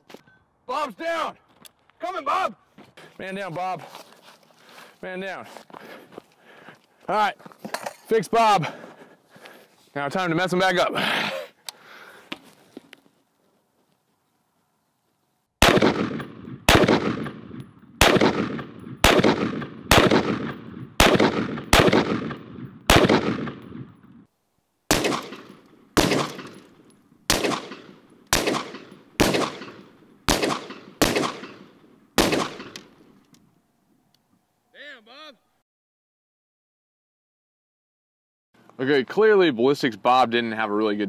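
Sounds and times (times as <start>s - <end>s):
rifle shots echoing: 15.6s - 24.1s, 24.9s - 33.1s.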